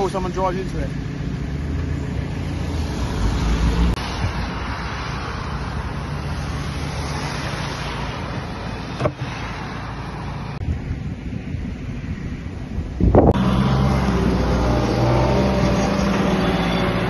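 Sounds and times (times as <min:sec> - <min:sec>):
traffic on a wet road: 0:00.0 - 0:17.0
storm wind on microphone: 0:02.6 - 0:07.6, 0:10.6 - 0:13.5.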